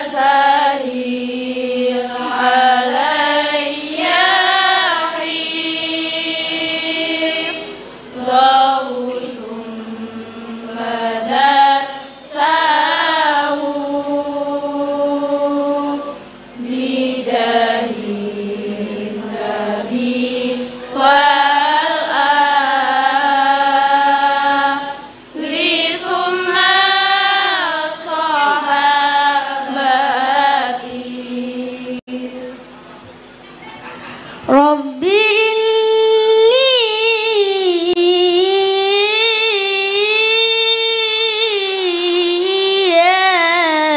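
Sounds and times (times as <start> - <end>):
girls chanting in unison: 0.0 - 32.2.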